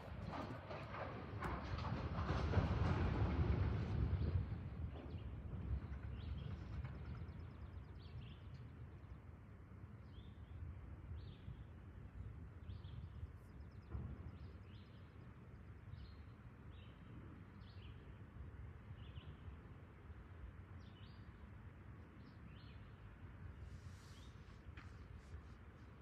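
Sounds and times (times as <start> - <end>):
freight train rumbling: 0.0 - 9.0.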